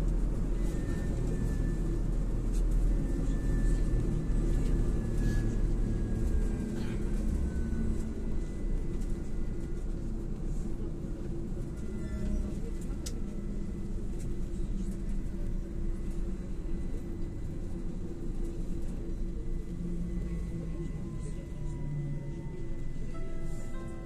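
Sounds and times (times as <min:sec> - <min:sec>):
low rumble of tyres: 0:00.0 - 0:24.0.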